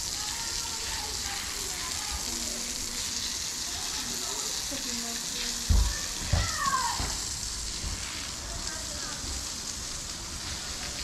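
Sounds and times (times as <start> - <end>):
hose spraying water on concrete: 0.0 - 11.0.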